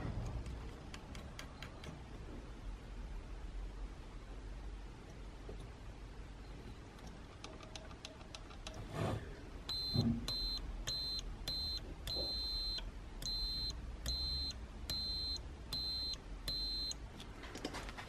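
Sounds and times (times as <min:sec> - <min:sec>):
multimeter continuity beeps: 0:09.6 - 0:17.0.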